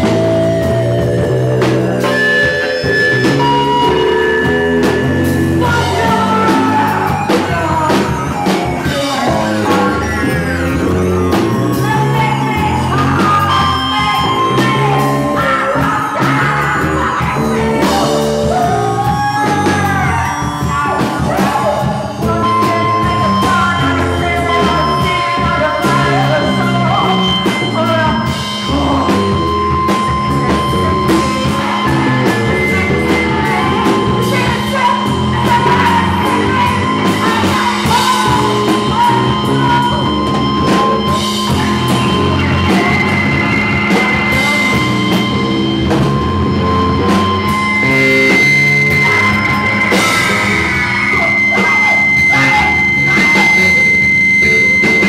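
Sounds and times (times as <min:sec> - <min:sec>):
distorted electric guitar: 0:00.0 - 0:55.0
drums: 0:00.0 - 0:55.0
high whining tones: 0:00.0 - 0:55.0
person singing: 0:00.0 - 0:55.0
low drone: 0:22.2 - 0:55.0.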